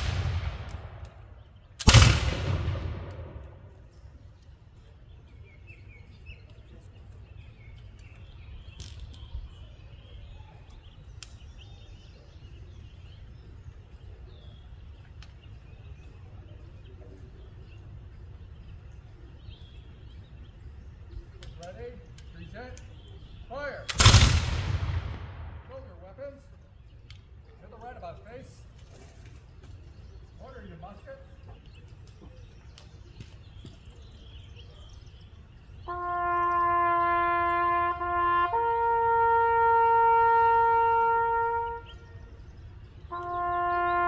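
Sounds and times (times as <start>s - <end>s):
musket shot echoing: 0.0s - 3.9s, 23.8s - 26.1s
birds chirping: 0.0s - 44.0s
faint clicks: 21.3s - 23.2s, 27.0s - 27.3s.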